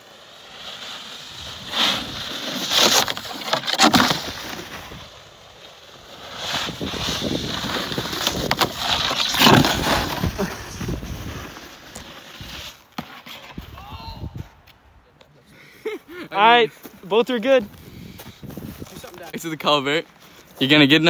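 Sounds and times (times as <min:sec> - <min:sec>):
snowboards carving over snow: 0:00.0 - 0:14.6
board edges scraping and knocking: 0:02.6 - 0:04.8, 0:07.5 - 0:11.0.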